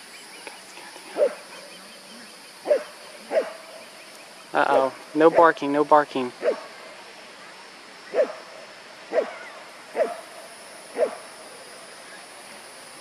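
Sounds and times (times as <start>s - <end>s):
dog yelping: 9.1s - 10.2s, 11.0s - 11.2s.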